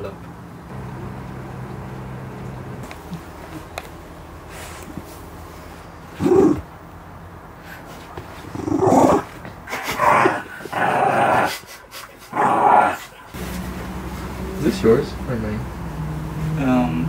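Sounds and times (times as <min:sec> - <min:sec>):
dog growling and barking: 0:06.1 - 0:06.7, 0:08.4 - 0:11.7, 0:12.3 - 0:13.4.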